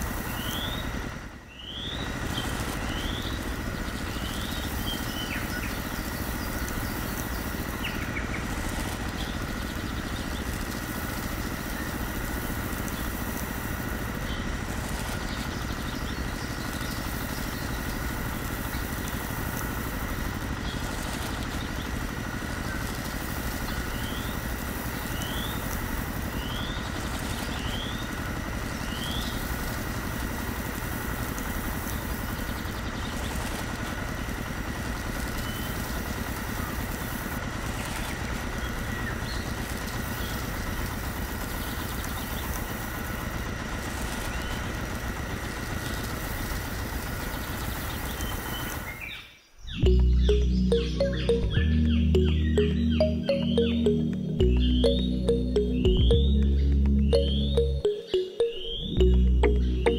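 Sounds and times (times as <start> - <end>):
grinding machine humming and whining: 0.0 - 48.8, 49.8 - 57.9
birds chirping: 1.5 - 12.0, 49.2 - 59.9.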